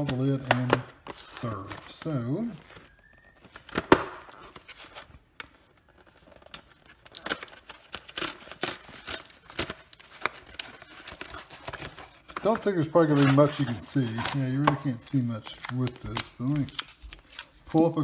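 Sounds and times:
cardboard tearing and crinkling: 6.0 - 17.6.

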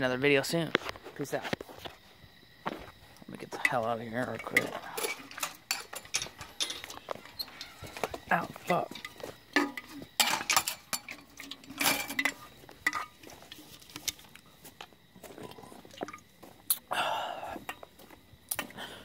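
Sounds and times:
handling rustles: 2.7 - 16.7.

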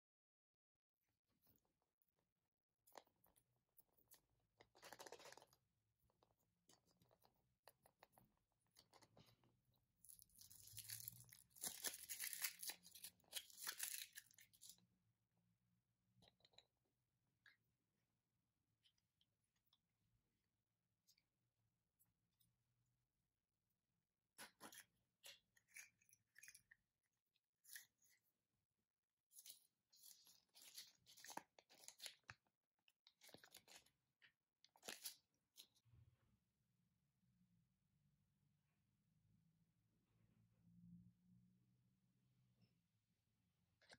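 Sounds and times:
foil wrapper crinkling: 10.4 - 14.7.

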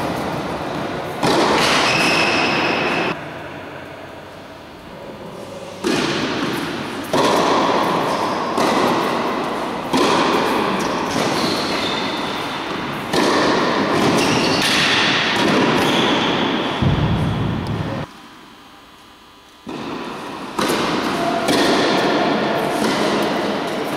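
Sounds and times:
tennis racket hits: 0.0 - 3.2, 5.8 - 17.8, 19.6 - 23.9
tennis ball bouncing: 0.1 - 3.1, 5.8 - 17.9, 19.6 - 23.5.

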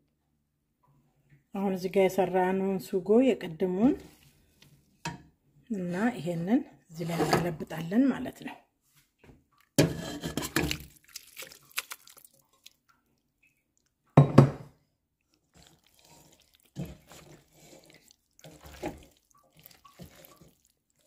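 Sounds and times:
wet stirring with spatula: 8.9 - 14.2, 15.1 - 21.0
sauce plopping onto pasta: 10.6 - 13.9, 15.3 - 21.0.

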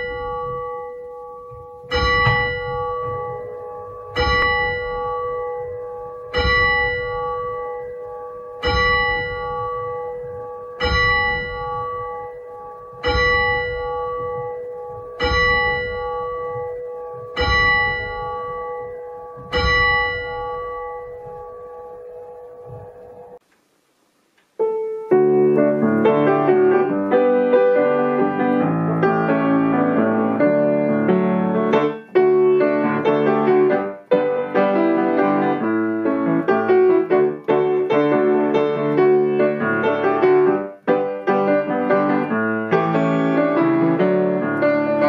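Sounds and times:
church bell tolling: 0.0 - 23.4.

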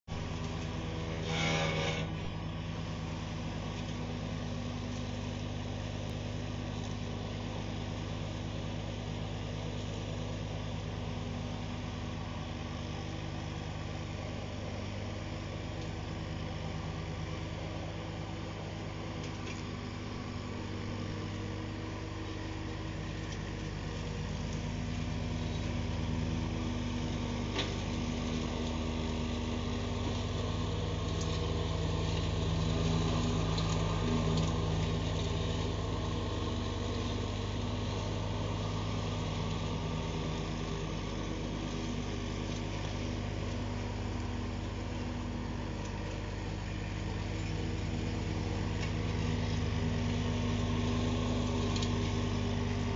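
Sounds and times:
tractor engine mowing: 0.1 - 52.9.

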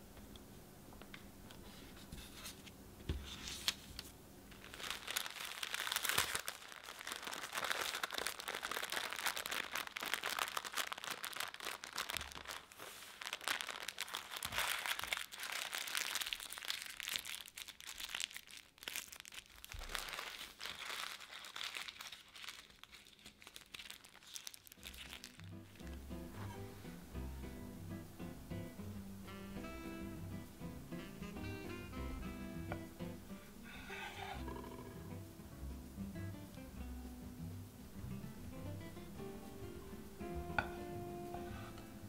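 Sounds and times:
parchment paper crinkling: 3.2 - 26.0.

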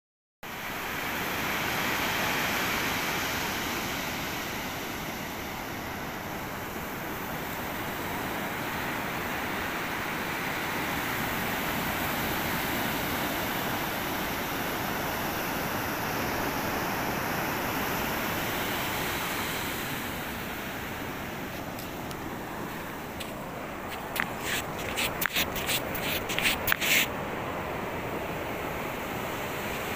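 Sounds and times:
surf breaking on beach: 18.4 - 27.5.

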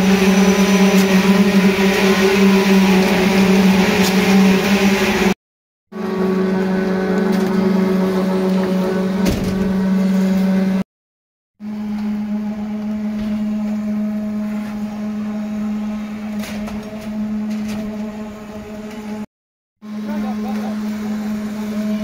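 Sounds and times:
concrete machinery humming: 0.0 - 10.8, 11.6 - 22.0.

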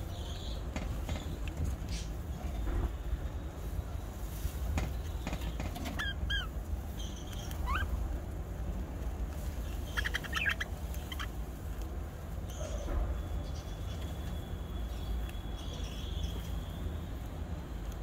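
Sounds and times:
budgerigars chirping: 5.8 - 8.0, 9.6 - 11.4.

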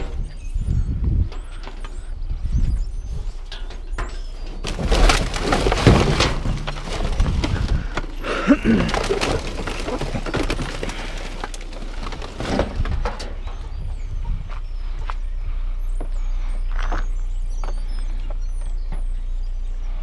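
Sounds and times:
garbage bags and cardboard rustling: 2.6 - 13.6
knocks in metal dumpster: 3.5 - 7.8.

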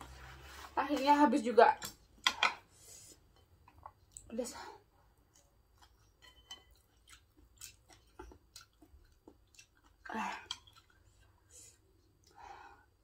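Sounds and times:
person chewing salad: 5.2 - 12.3.

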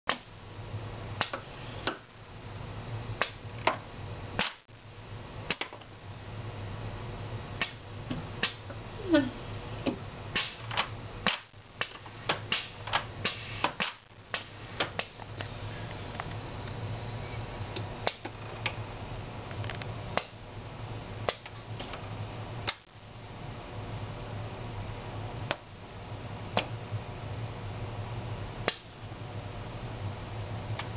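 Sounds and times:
low machine hum: 0.1 - 30.9
pneumatic actuators clicking: 9.8 - 15.2.

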